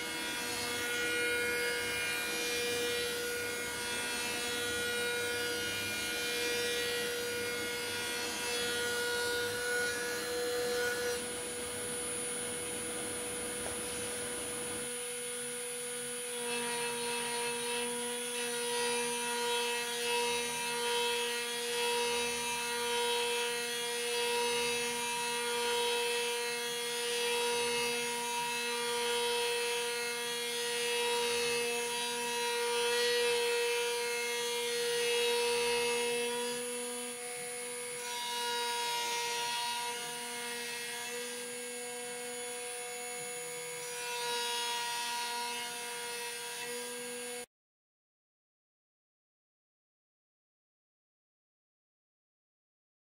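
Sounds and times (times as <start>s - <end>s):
lower machine whine: 9.5s - 16.2s.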